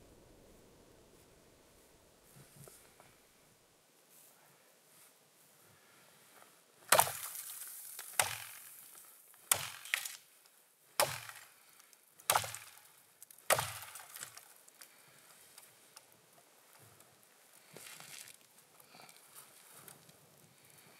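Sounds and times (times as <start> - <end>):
dry wood cracking: 6.9 - 10.3, 11.0 - 16.2, 17.0 - 20.9.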